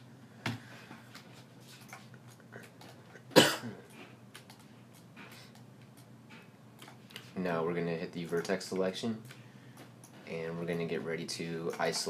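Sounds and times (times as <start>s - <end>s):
person coughing: 3.3s - 3.9s
computer mouse and keyboard clicks: 4.3s - 7.4s.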